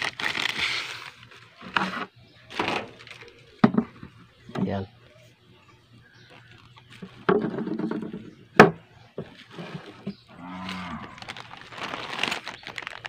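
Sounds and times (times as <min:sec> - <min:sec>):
cow mooing: 0:10.3 - 0:11.3.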